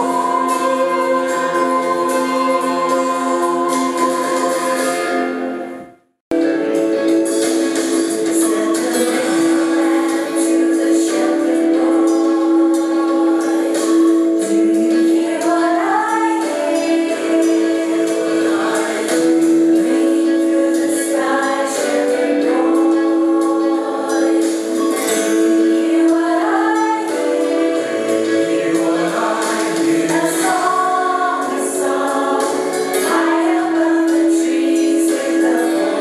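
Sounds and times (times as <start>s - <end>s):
mixed choir singing a carol: 0.0s - 5.6s, 8.4s - 36.0s.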